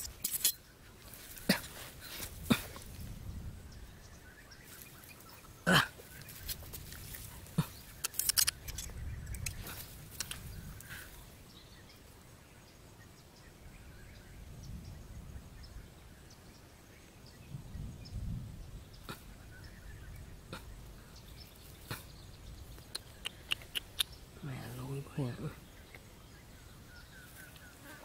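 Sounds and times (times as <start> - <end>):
bamboo sticks clicking and tapping: 7.9 - 10.5, 22.8 - 24.1.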